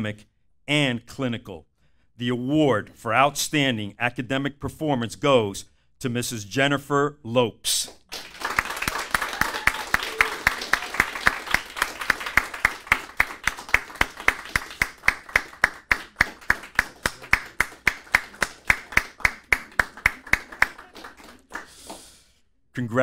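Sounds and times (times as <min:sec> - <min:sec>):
hands clapping in rhythm: 0:07.8 - 0:22.4.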